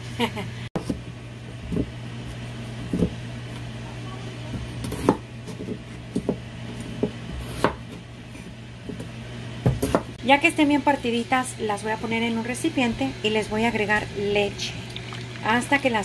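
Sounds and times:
knife chopping on wooden board: 4.8s - 10.2s.

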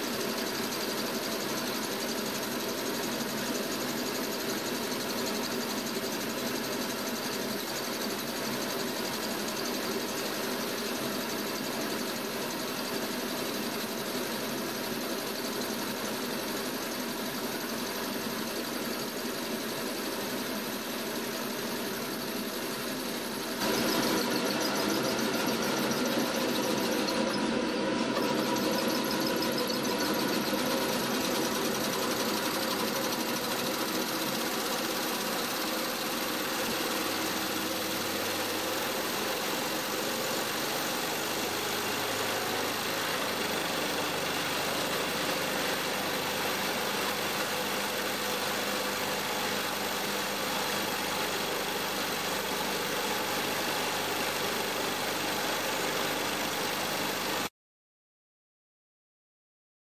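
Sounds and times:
steam engine running: 17.0s - 57.5s.

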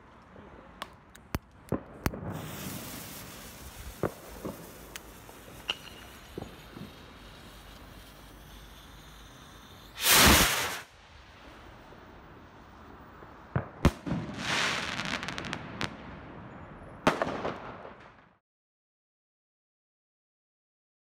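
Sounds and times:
crackling firework stars: 0.0s - 18.4s
firework bangs: 1.7s - 12.2s, 13.2s - 18.4s
firework rocket whoosh: 2.1s - 12.5s.

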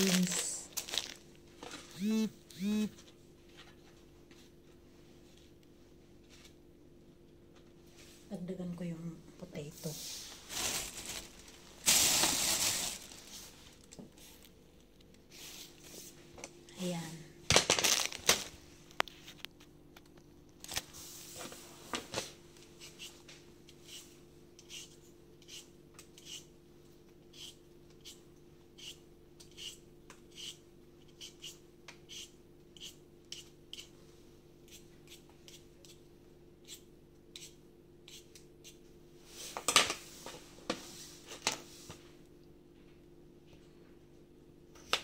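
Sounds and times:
potato peeler scraping strokes: 22.8s - 26.5s, 27.3s - 28.2s, 28.8s - 33.9s, 34.6s - 36.0s, 36.6s - 38.8s.

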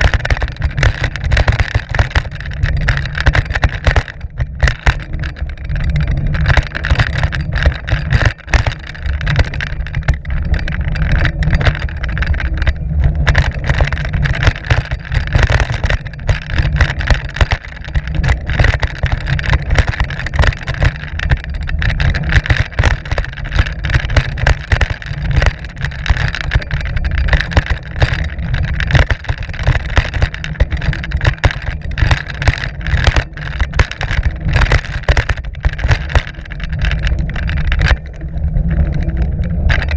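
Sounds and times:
bike rattles and knocks: 0.0s - 39.9s.

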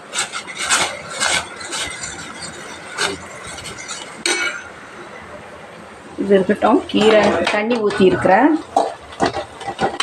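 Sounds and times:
metal ladle scraping steel pot: 0.0s - 4.8s
high-pitched steel squeal: 0.1s - 4.7s.

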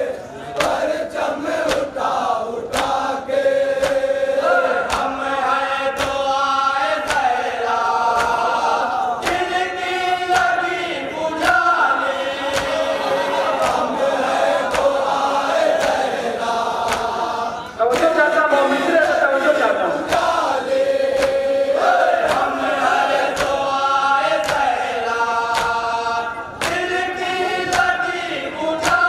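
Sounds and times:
crowd chanting along: 0.0s - 29.0s
chest beating slaps: 4.8s - 5.2s, 21.1s - 21.4s, 22.2s - 22.6s, 23.3s - 23.6s, 24.4s - 24.8s, 25.5s - 25.8s
man chanting into a microphone: 17.0s - 21.8s.

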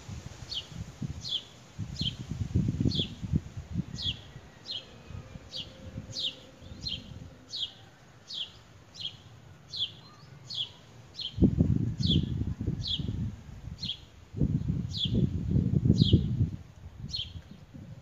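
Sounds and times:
low rumbling noise: 2.6s - 8.3s.

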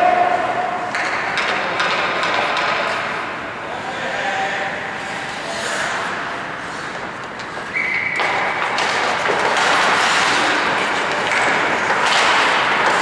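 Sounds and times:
stick and puck knocks: 0.9s - 2.9s, 7.2s - 13.0s
skates scraping ice: 4.9s - 13.0s.

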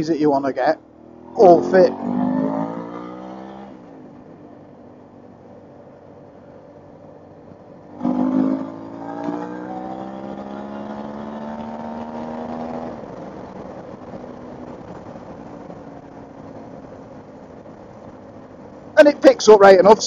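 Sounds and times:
motorcycle engine accelerating: 0.8s - 19.0s.

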